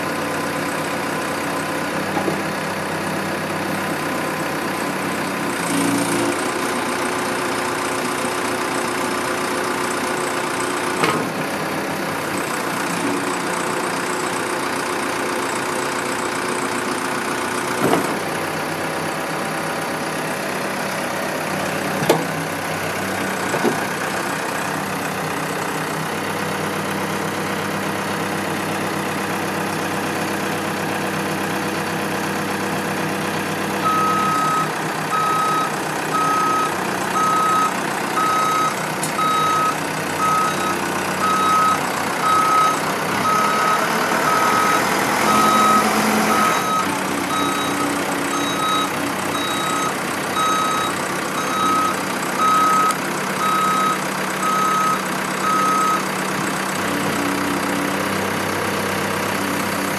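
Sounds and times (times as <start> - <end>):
diesel engine under throttle: 0.0 - 59.9
back-up alarm beeps: 33.9 - 56.0.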